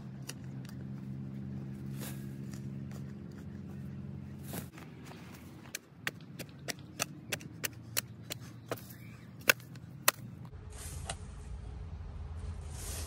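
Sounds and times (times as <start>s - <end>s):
low steady rumble: 10.2s - 13.0s.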